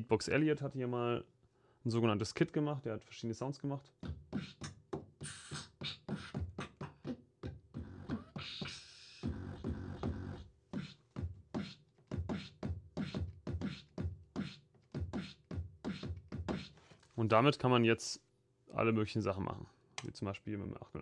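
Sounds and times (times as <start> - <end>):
beatbox percussion samples: 3.9 - 16.8.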